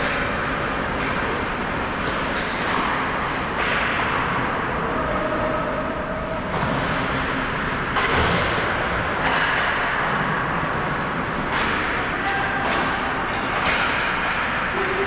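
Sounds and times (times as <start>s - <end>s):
stick or puck clacks: 0.0s - 4.4s, 9.2s - 10.4s, 11.4s - 14.8s
echoing hall noise: 0.0s - 15.0s.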